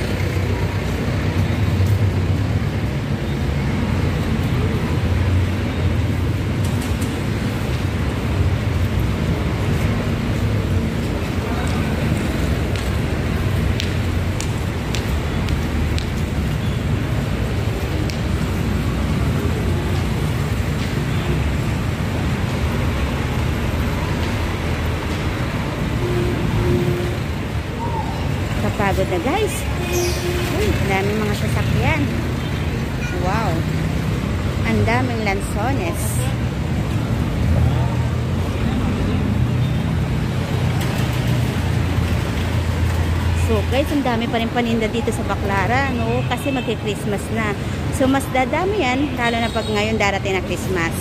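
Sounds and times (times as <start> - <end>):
city street traffic rumble: 0.0 - 51.0.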